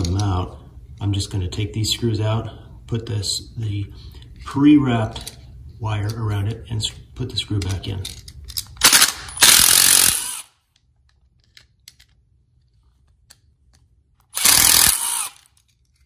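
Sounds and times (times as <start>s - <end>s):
cordless screw gun running: 9.4s - 10.5s, 14.4s - 15.5s.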